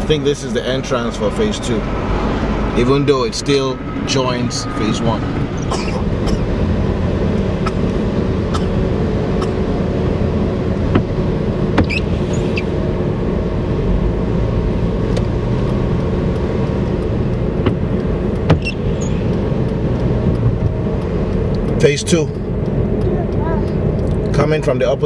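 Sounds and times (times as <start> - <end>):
car engine and tyre rumble: 0.0 - 25.0
sharp ticks: 15.1 - 25.0.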